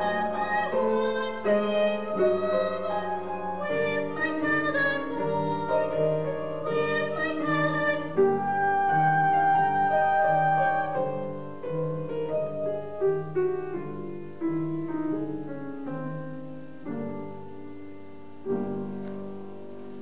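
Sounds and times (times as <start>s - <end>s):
woman singing high note: 0.0s - 11.4s
piano playing: 0.0s - 20.0s.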